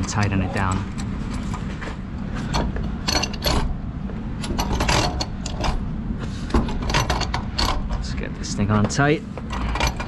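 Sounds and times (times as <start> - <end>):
metallic clicking and rattling: 2.5 - 3.8, 4.4 - 5.8, 6.5 - 8.2, 9.4 - 10.0.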